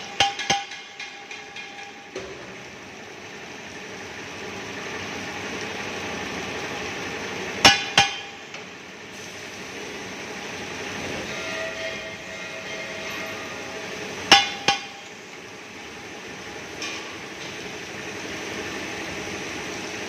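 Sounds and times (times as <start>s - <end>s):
sharp metallic knocks: 0.0s - 2.6s, 7.6s - 8.4s, 14.3s - 15.1s.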